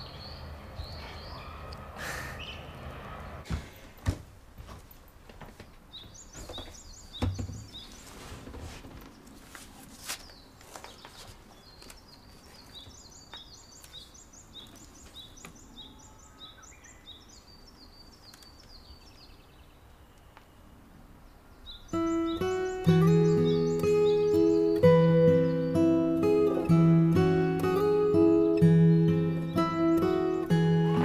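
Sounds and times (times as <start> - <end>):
birds chirping: 0.0 - 3.9, 5.6 - 31.0
sharp knocks: 6.4 - 7.8.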